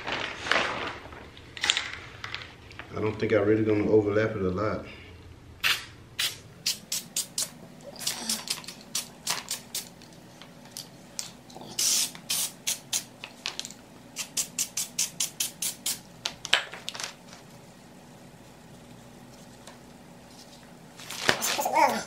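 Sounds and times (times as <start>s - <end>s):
aerosol can hissing bursts: 5.6s - 9.9s, 11.8s - 13.1s, 14.2s - 16.0s.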